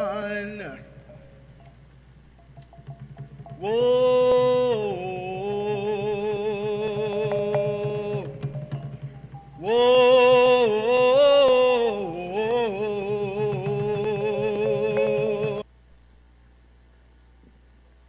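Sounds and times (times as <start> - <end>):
man chanting into microphone: 0.0 - 1.2, 3.5 - 15.6
faint low hum: 0.0 - 18.0.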